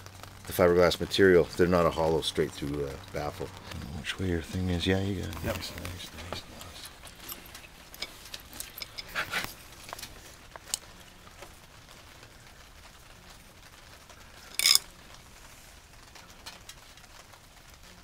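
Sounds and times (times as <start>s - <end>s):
metal scrape: 7.1s - 9.6s.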